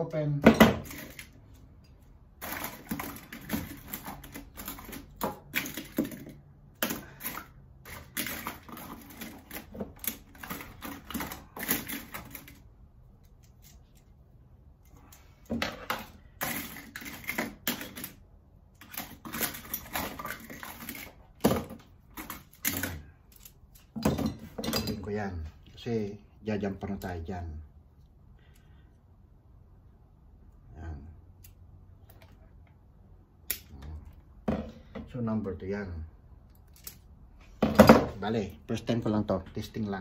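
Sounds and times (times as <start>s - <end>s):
small tools and parts clicking: 14.8s - 25.1s, 36.4s - 37.2s.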